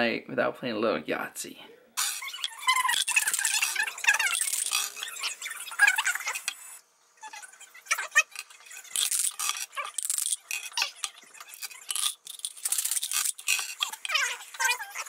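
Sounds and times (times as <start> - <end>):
dice rattling in a cup: 2.0 - 6.6, 8.0 - 14.8
dice clattering on wooden table: 2.1 - 5.1, 8.2 - 14.3.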